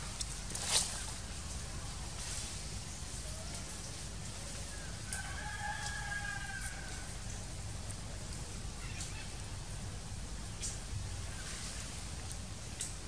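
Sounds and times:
rooster crowing: 5.1s - 7.1s.

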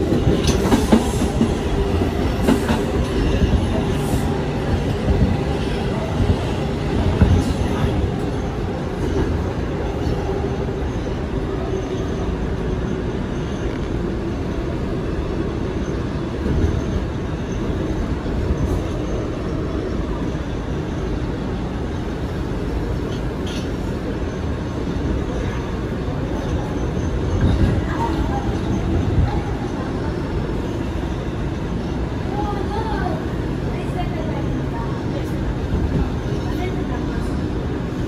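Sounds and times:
subway car wheels rumbling on rails: 0.0s - 38.0s.

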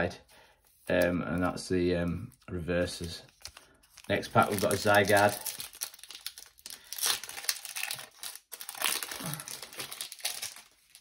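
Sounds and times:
foil wrapper crinkling and tearing: 2.9s - 11.0s.

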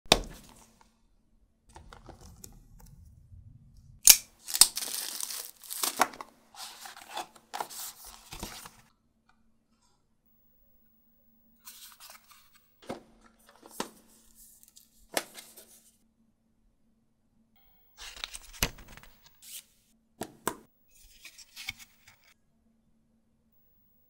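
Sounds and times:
plastic wrap tearing and crinkling: 4.0s - 7.4s.

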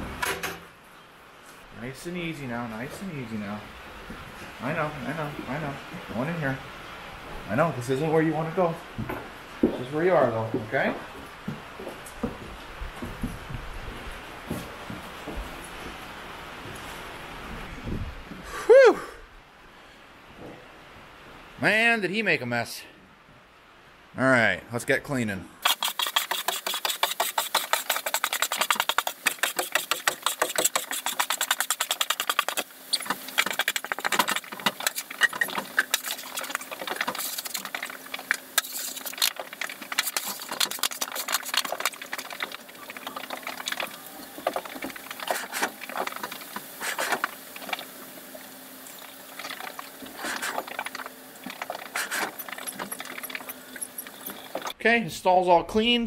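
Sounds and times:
shovel scraping stall mats: 25.6s - 47.8s, 49.4s - 54.8s.

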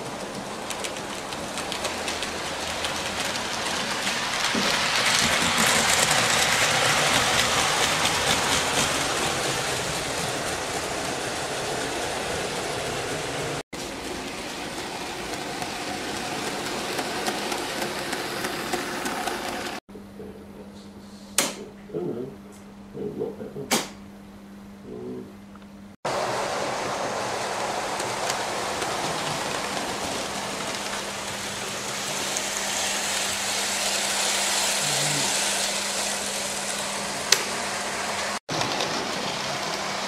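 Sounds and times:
model train rolling on track: 0.0s - 19.8s, 26.1s - 40.0s.

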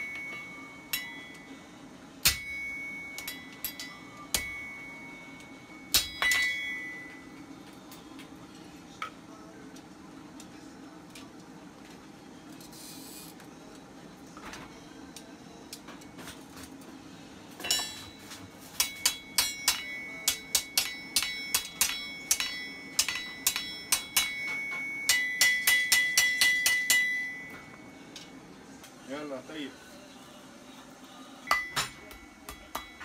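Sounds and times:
hammer striking iron on anvil: 0.0s - 1.5s, 2.2s - 7.4s, 17.6s - 28.3s, 31.5s - 33.0s.

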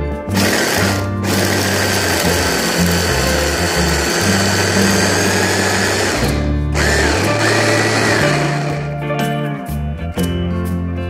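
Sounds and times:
electric food chopper whining: 0.2s - 9.0s.

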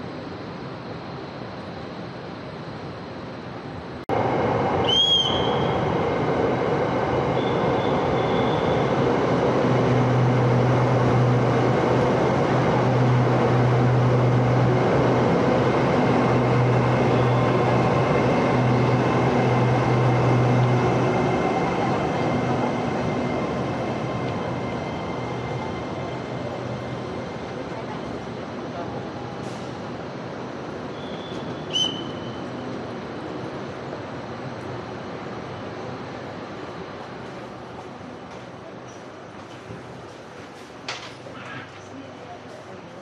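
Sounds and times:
short high squeal: 30.9s - 32.5s.

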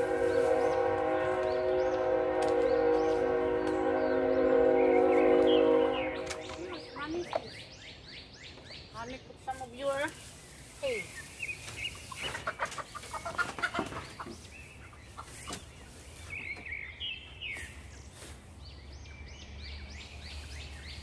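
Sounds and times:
straw rustling and crackling: 0.0s - 1.5s, 9.4s - 16.6s
chickens clucking: 11.2s - 16.6s.

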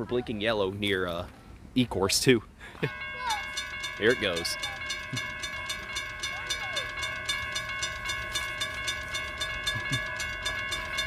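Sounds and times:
railroad crossing bell ringing: 2.8s - 11.0s.

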